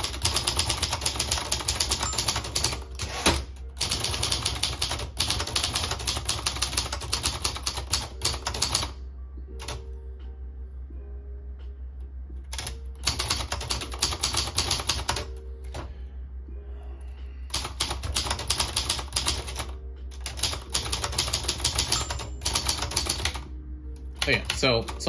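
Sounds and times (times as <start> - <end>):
manual typewriter key strikes: 0.0 - 8.9, 17.6 - 23.4.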